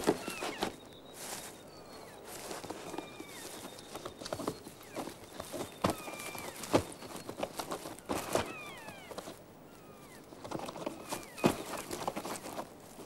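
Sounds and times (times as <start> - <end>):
thin bird whistles: 0.0 - 7.4, 8.2 - 9.2
knocks and scrapes on gravel: 0.0 - 9.4, 10.1 - 13.0.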